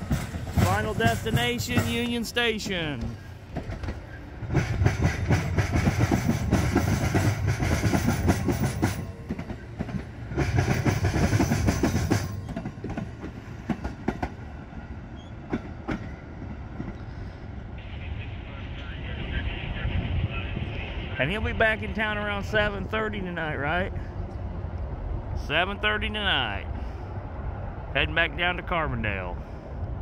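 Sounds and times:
train wheels clattering over rail joints: 0.0 - 14.4
low train rumble: 0.0 - 30.0.

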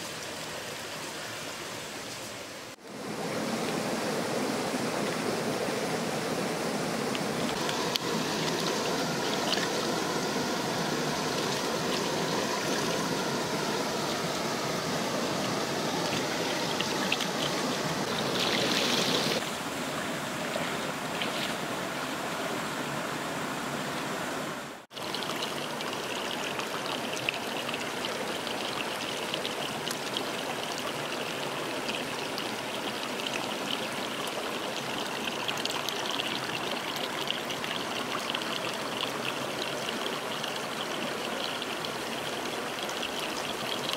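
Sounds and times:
rocky stream running: 0.0 - 43.9
water splashing from rinsing: 7.5 - 19.4.

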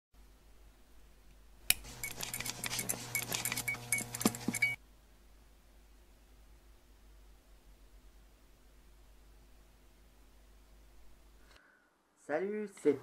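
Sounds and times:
fluorescent starter clicking: 1.7 - 4.8.

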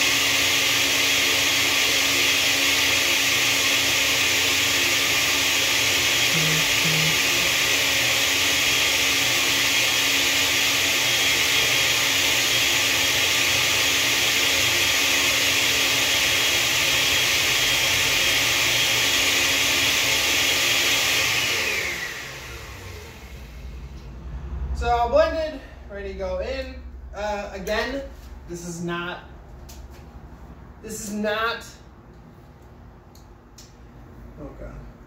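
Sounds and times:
blender running: 0.0 - 24.0.

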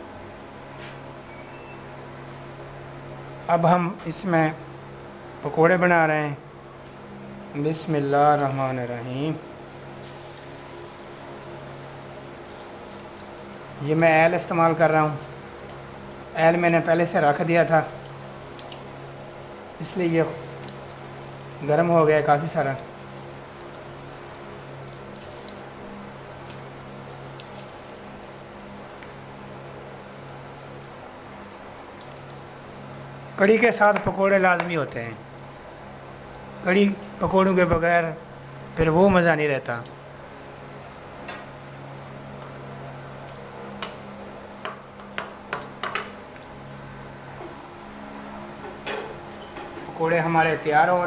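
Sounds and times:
low steady hum: 0.0 - 51.0
batter sizzling in hot oil: 8.4 - 50.9.

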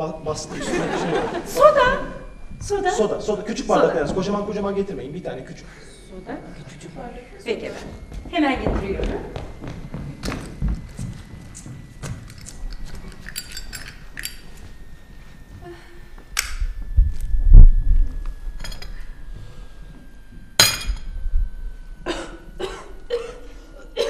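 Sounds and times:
small clinks and clicks: 12.2 - 14.6.

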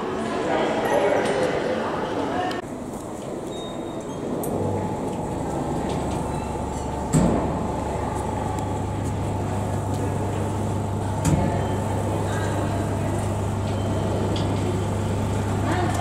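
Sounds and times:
dispensing machine humming: 4.2 - 16.0.

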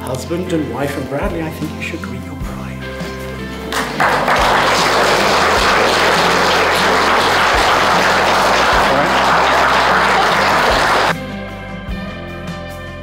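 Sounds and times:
crowd applauding: 3.7 - 11.2.

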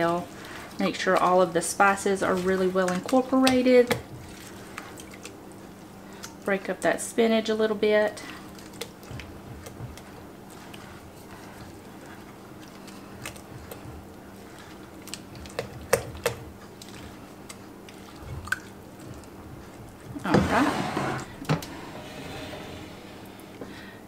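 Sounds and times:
spatula stirring thick mixture: 0.0 - 21.6
bowl scraping across counter: 20.3 - 23.6.

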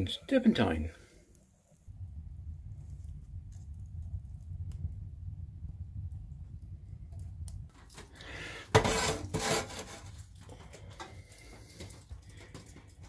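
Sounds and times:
low rumble: 1.8 - 8.7
pan scraping across stove: 8.0 - 10.5.

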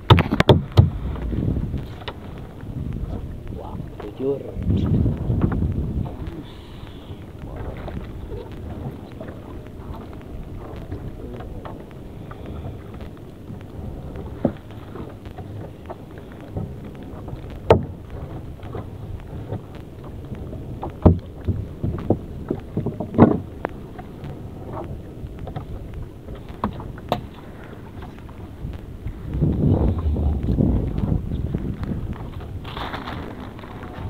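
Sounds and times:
knocks and thumps: 0.0 - 6.3
low rumble of wind and water: 0.0 - 34.0.

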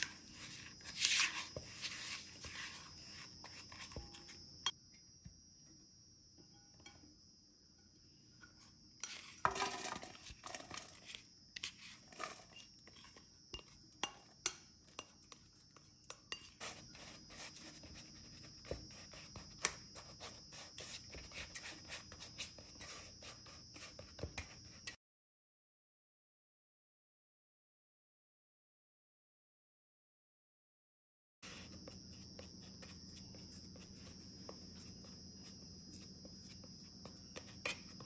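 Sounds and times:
utensil scraping a dish: 0.0 - 4.4, 9.0 - 14.3, 14.9 - 24.6.

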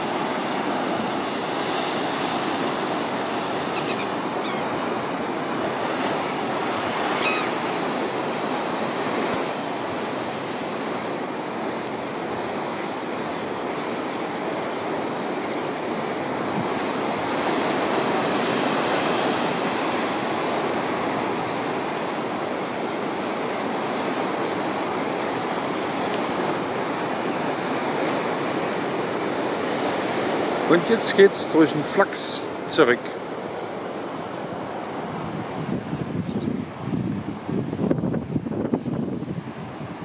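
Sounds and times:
ocean surf rushing over rocks: 0.0 - 40.0.

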